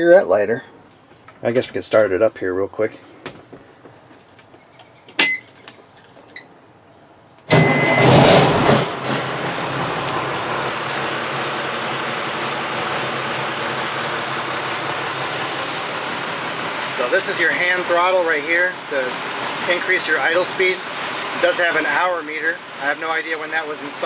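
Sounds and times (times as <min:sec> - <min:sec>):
diesel engine starting and idling: 0:07.5 - 0:24.0.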